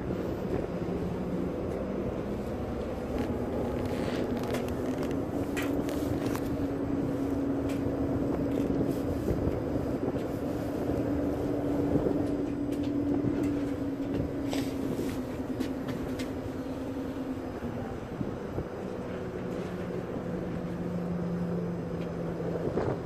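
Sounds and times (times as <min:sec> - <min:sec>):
ferry engines droning: 0:00.0 - 0:23.0.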